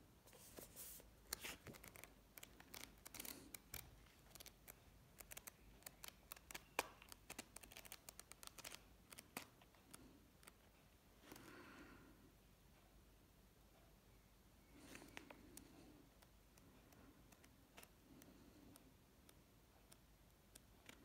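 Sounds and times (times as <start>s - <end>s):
book pages flicking: 1.3s - 9.5s.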